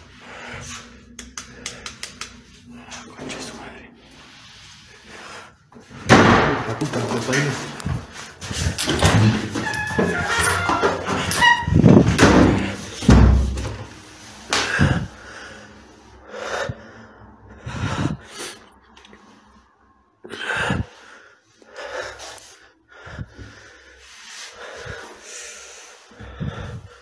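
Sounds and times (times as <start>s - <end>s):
man breathing heavily: 0.0s - 6.1s, 7.4s - 9.6s, 11.2s - 27.0s.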